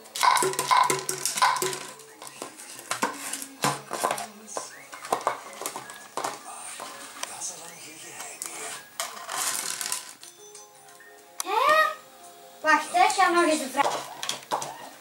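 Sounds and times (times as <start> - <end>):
plastic bottle knocking on tiles: 0.2 - 6.9, 13.8 - 14.8.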